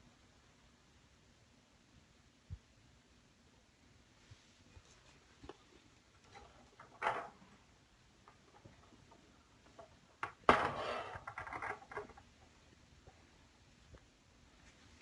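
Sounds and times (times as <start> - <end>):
toy knocking and rattling on floor: 6.3 - 7.5, 8.2 - 12.3.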